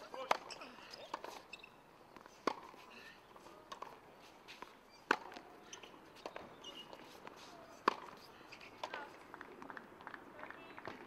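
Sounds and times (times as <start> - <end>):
racket hitting tennis ball: 0.2 - 1.4, 2.2 - 2.8, 3.7 - 5.5, 6.2 - 9.0.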